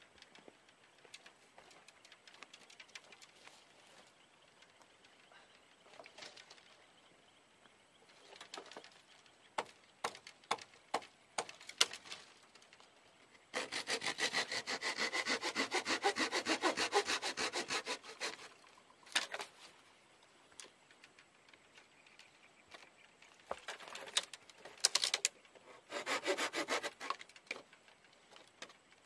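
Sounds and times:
brittle wood cracking: 11.4 - 12.9, 23.5 - 25.4
hand saw cutting branch: 13.5 - 18.6, 25.6 - 27.3.

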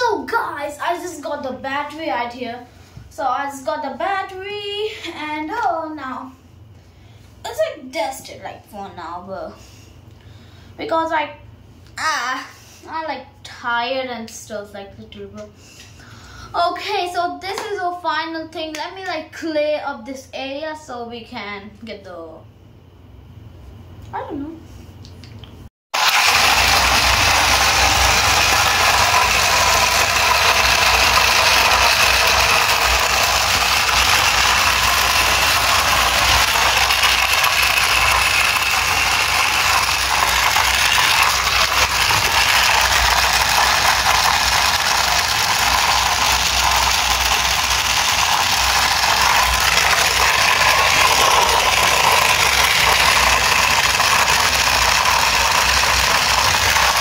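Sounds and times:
plastic gears whirring: 26.0 - 57.0.

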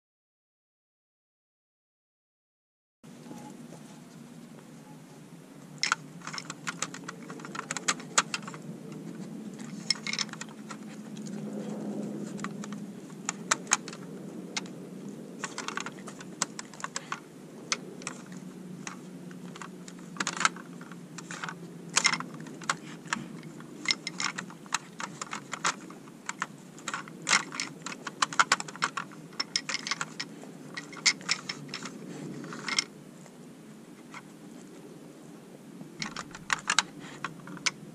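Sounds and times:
plastic puzzle toy clicking: 5.8 - 10.9, 12.3 - 14.7, 15.4 - 32.9, 36.0 - 37.9.

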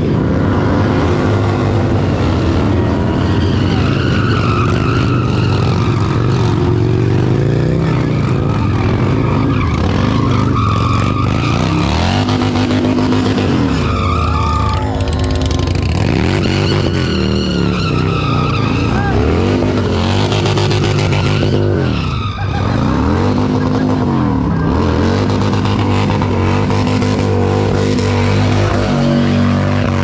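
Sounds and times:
motorcycle engine revving: 0.0 - 30.0
tyre screeching on pavement: 1.9 - 30.0.

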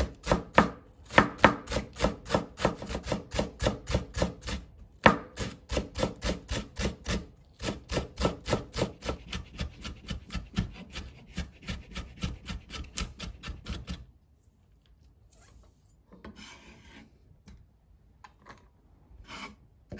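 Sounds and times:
knife chopping on wooden board: 0.0 - 14.0.

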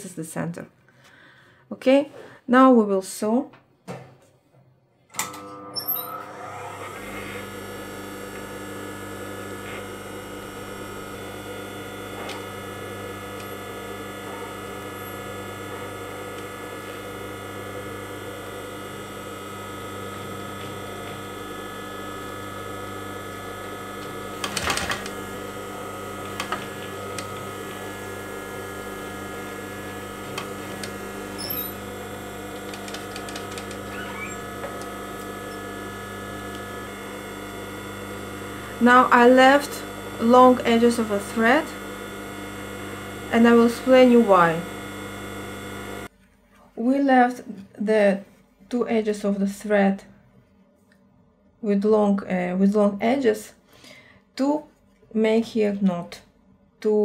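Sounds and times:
sewing machine motor hum: 5.2 - 46.1
sewing machine clicking: 24.0 - 27.8, 28.9 - 35.7.

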